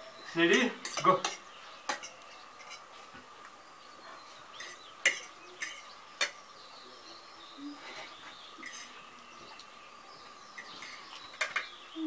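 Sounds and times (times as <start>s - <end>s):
forks clinking on plates: 0.3s - 2.9s, 4.6s - 6.4s.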